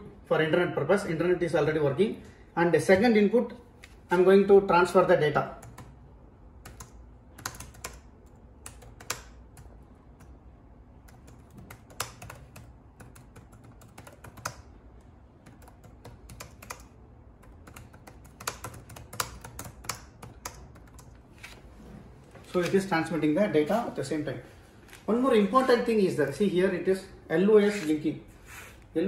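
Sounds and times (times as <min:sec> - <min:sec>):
laptop keyboard typing: 0:05.6 - 0:06.0, 0:06.6 - 0:10.4, 0:11.0 - 0:21.6.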